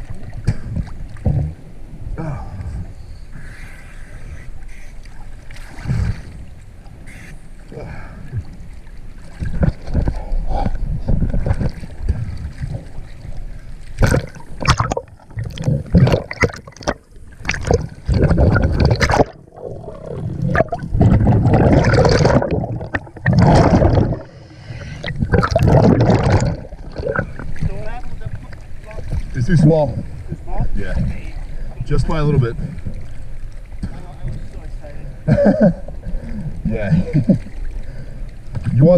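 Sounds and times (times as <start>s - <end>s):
water gurgling and sloshing: 0.0s - 38.9s
bubbles: 9.2s - 13.4s, 14.0s - 30.2s.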